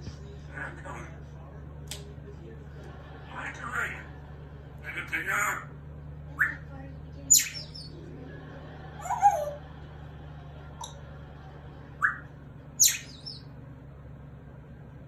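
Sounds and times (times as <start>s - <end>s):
faint low hum: 0.0s - 15.0s
parrot whistles and chirps: 7.4s - 7.9s, 12.0s - 13.5s.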